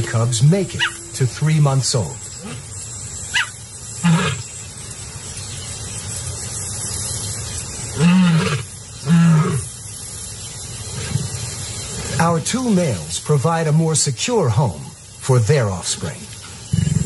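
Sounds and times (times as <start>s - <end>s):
lion snarling: 4.0s - 4.4s, 16.7s - 17.0s.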